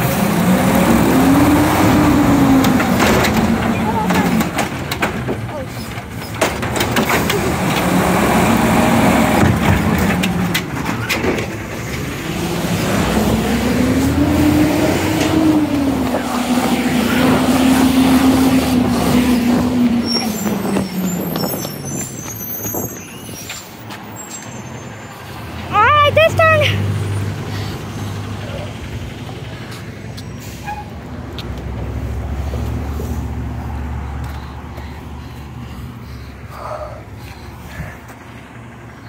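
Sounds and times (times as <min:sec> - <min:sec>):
garbage truck engine revving: 0:00.0 - 0:23.0.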